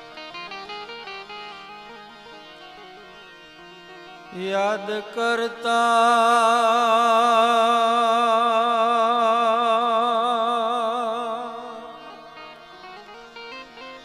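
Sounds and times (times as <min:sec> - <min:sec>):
man singing long vibrato note: 0:04.2 - 0:13.5.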